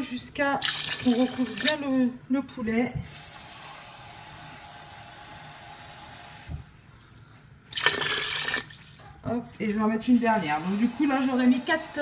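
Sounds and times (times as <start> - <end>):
water pouring into a pot: 0.6 - 2.2, 7.7 - 9.0.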